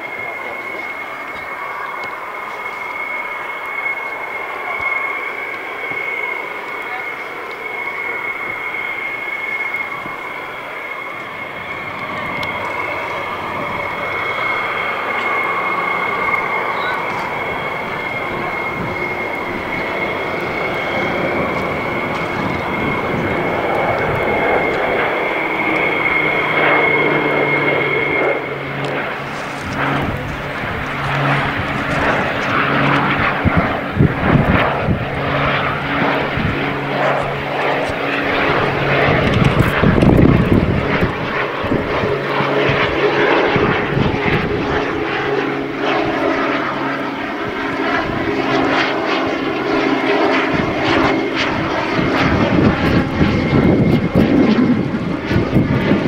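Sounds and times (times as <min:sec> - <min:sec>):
airplane engine whine: 0:00.0 - 0:56.0.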